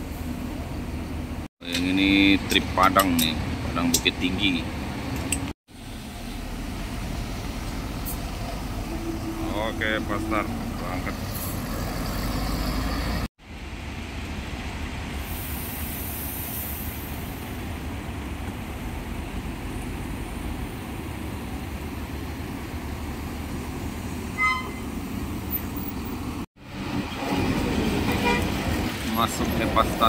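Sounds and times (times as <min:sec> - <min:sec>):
bus diesel engine rumbling: 0:00.0 - 0:30.0
brief high-pitched tone: 0:24.4 - 0:24.9.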